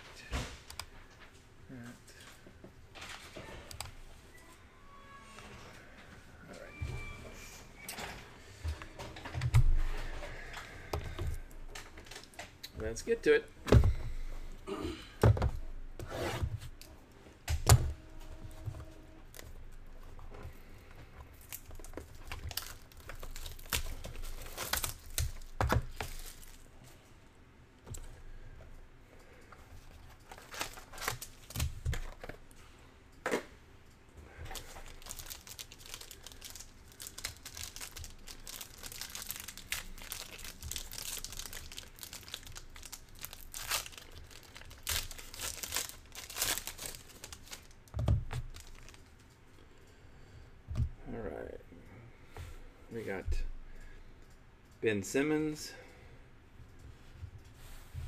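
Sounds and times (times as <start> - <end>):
plastic and foil crinkling and tearing: 21.3 - 26.7, 30.1 - 32.4, 34.5 - 49.2.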